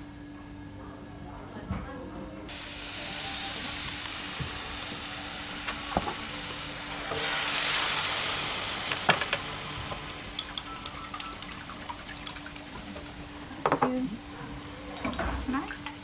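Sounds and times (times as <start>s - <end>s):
meat sizzling in a hot pan: 2.5s - 11.4s.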